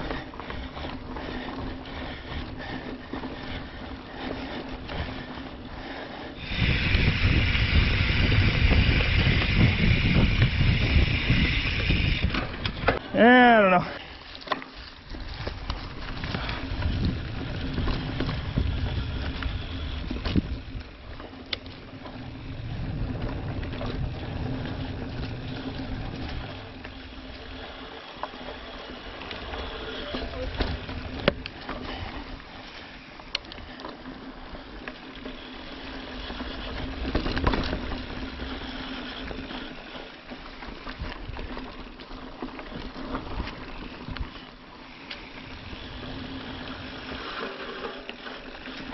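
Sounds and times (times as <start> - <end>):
bike tyre and frame rumble: 0.0 - 48.9
wind buffeting microphone: 6.4 - 13.0, 15.2 - 21.2, 21.8 - 26.8.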